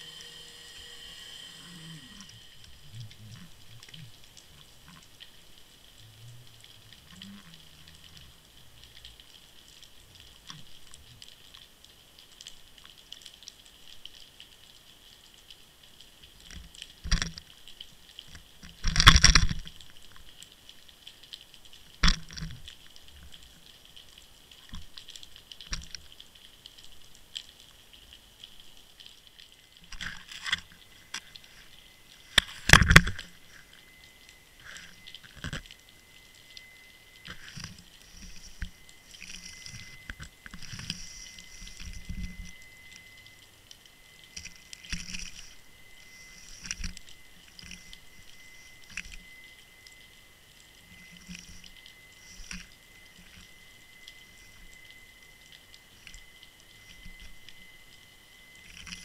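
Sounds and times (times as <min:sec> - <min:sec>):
underwater hiss: 0:00.0 - 0:04.2, 0:37.3 - 0:42.9, 0:44.5 - 0:49.2.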